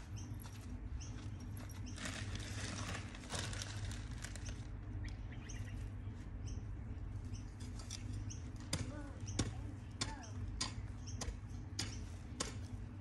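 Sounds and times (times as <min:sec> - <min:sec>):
low steady hum: 0:00.0 - 0:13.0
rustling: 0:01.6 - 0:04.7.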